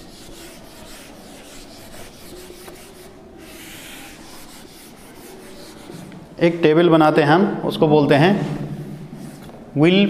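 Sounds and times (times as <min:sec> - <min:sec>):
eraser wiping a whiteboard: 0:00.0 - 0:06.2.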